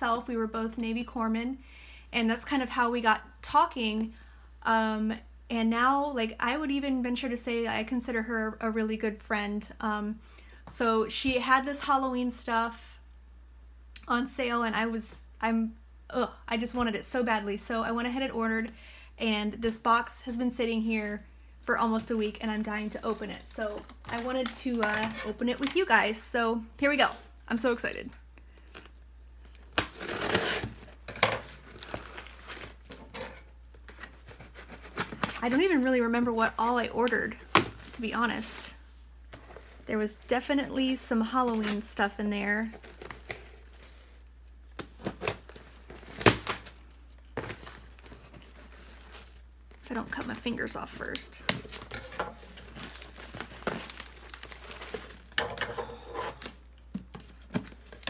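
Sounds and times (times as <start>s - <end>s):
packing tape ripping: 28.6s - 31.0s, 44.7s - 49.4s, 51.4s - 55.6s
cardboard flaps crinkling: 42.7s - 55.6s.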